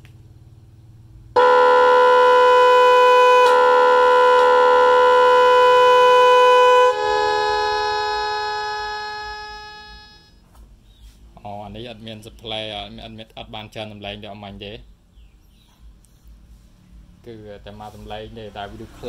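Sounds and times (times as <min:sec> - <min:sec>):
electric horn blast: 0:01.4 - 0:10.4.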